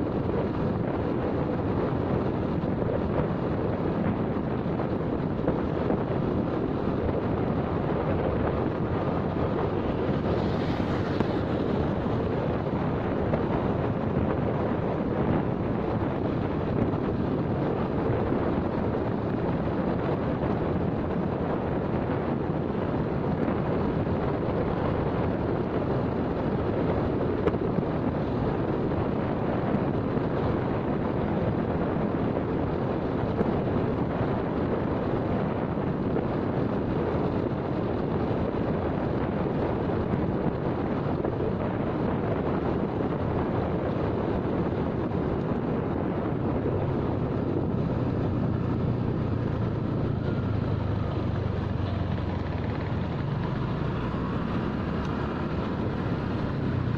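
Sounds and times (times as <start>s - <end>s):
road noise: 0.0s - 56.9s
wind rushing on microphone: 0.0s - 56.9s
motorcycle engine: 46.8s - 56.9s.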